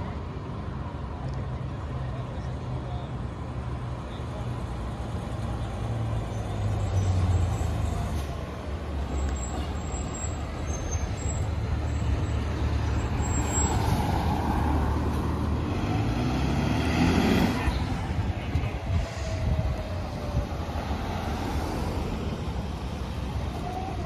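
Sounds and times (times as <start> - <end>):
diesel engine driving past: 6.5 - 23.1.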